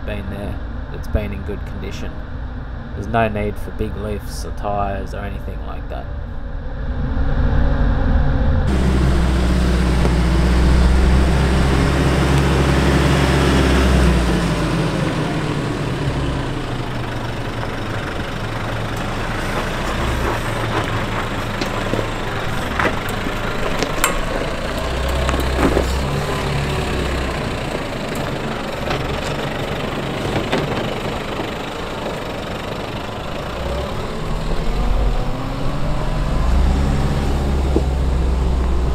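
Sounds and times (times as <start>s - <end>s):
vehicle engine running: 0.0s - 38.9s
sharp clicks and knocks: 17.5s - 32.2s.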